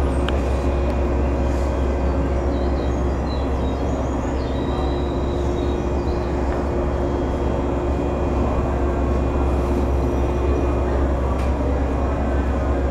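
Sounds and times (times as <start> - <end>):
electric train humming: 0.0 - 12.9.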